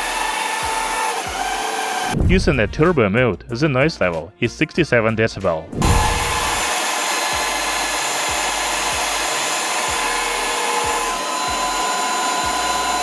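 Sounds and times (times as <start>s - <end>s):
stick vacuum running: 0.0s - 2.2s, 5.8s - 13.0s.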